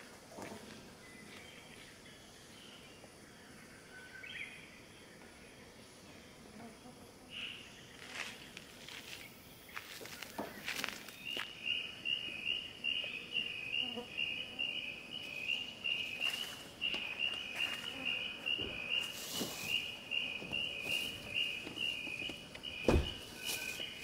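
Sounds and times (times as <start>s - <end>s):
insect chirping: 0.9s - 24.0s
luggage knocks and rustles: 20.4s - 23.7s.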